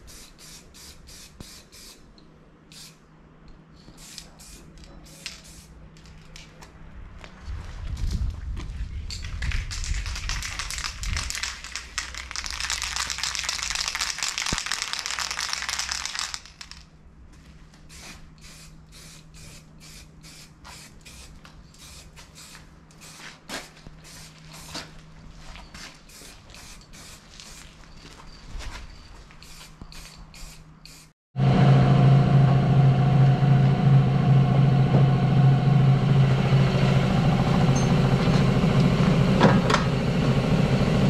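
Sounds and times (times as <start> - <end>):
spray paint can hissing: 0.0 - 2.1, 2.7 - 3.0, 3.9 - 5.7, 9.8 - 16.8, 17.9 - 24.8, 26.0 - 27.8, 29.4 - 31.2.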